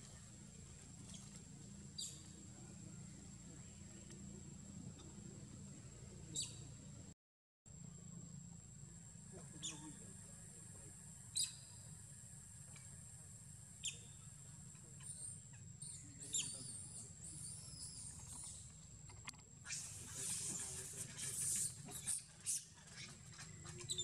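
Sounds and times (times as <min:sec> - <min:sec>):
steady low hum: 0:00.0 - 0:24.0
hissy rustle: 0:19.7 - 0:22.9.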